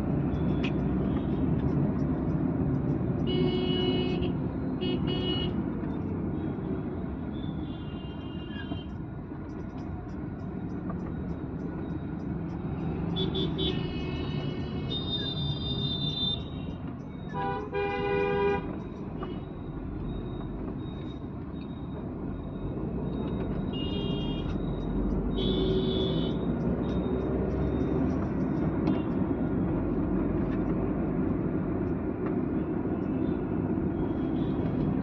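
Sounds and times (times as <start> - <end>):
car road and engine noise: 0.0 - 35.0
car horns honking: 17.3 - 18.7, 25.4 - 26.4.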